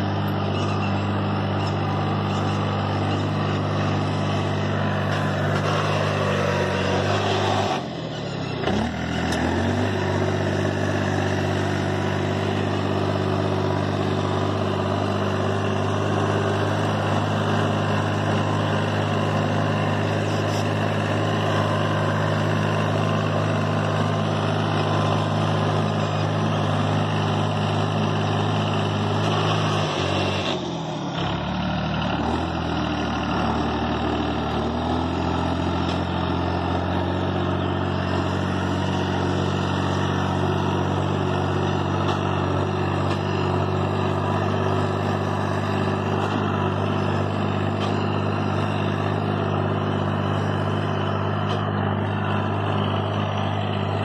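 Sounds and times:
tractor engine running under load: 0.0s - 54.0s.

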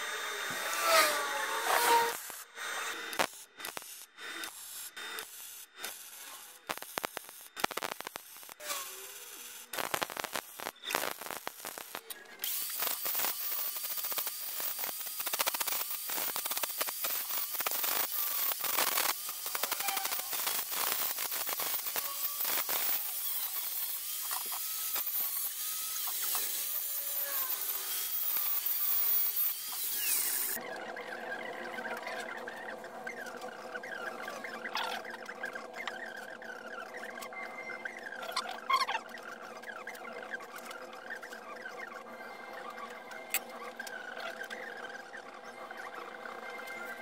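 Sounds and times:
angle grinder grinding steel: 0.0s - 47.0s
welding crackling: 3.1s - 30.6s.

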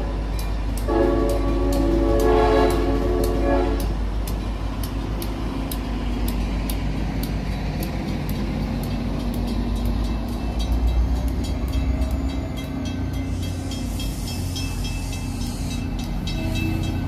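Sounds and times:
locomotive air horn: 0.0s - 4.0s, 13.4s - 17.0s
crossing bell dinging: 0.0s - 5.2s, 6.3s - 17.0s
diesel engine rumbling: 0.0s - 17.0s.

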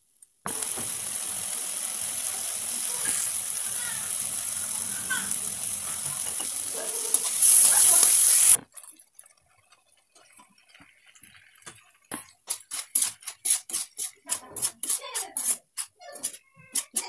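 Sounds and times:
masala sizzling in a pan: 0.0s - 16.0s
steel ladle scraping a pan: 5.9s - 8.6s.

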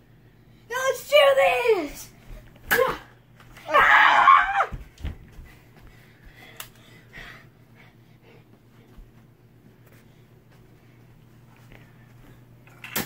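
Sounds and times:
child yelling: 0.7s - 2.1s, 3.7s - 4.8s.

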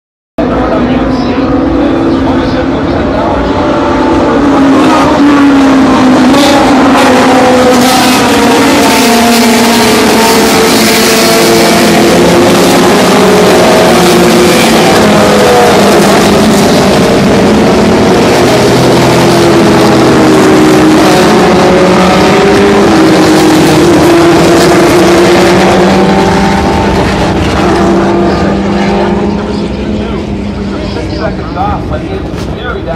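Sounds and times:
racing cars passing at high revs: 0.4s - 32.9s.

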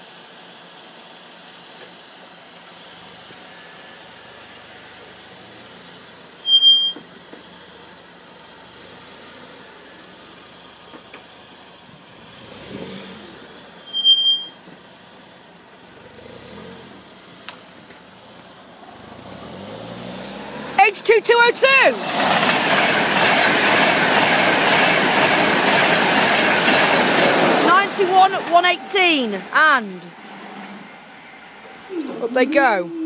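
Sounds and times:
outdoor background noise: 0.0s - 33.0s
loud high-pitched beep: 6.4s - 7.0s, 13.8s - 14.6s
approaching train rumble: 21.4s - 33.0s.

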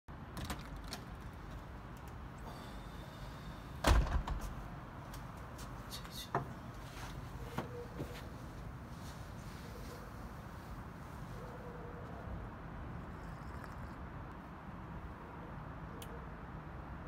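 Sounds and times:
door handle clicks and knocks: 0.4s - 1.1s
glass door thumping: 3.8s - 4.6s.

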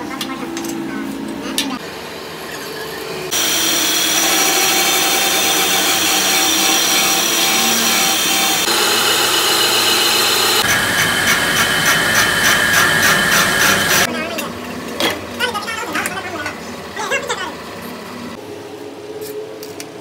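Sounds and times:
metalworking machine whining: 2.1s - 14.1s.

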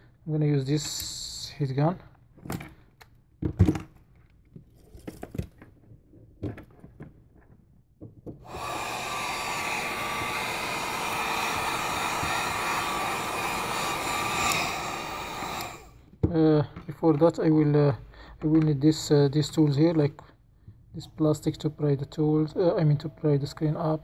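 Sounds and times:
heat gun running with whine: 8.4s - 16.0s.

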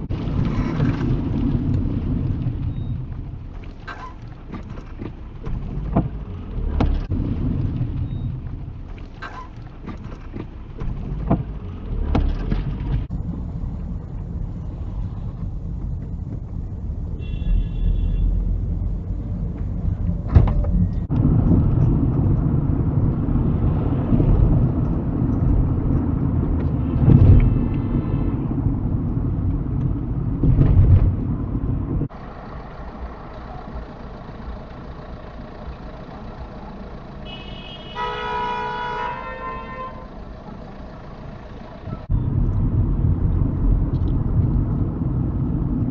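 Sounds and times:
car road and engine noise: 0.0s - 45.9s
car horn honking: 17.2s - 18.5s, 37.2s - 40.2s.

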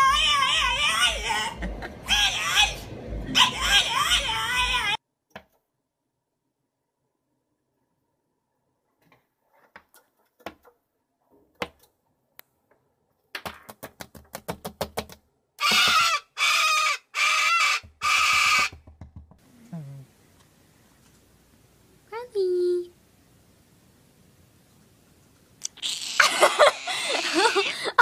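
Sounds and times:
cockatoo screeching: 0.0s - 5.0s, 15.6s - 18.8s, 25.6s - 28.0s
bird tapping on window glass: 17.8s - 19.4s.

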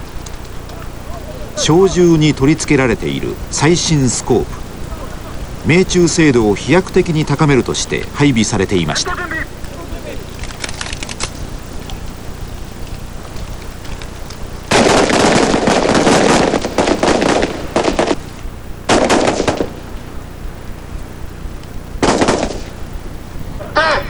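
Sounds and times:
rifles firing in bursts: 14.7s - 18.2s, 18.9s - 20.3s, 22.0s - 22.7s.

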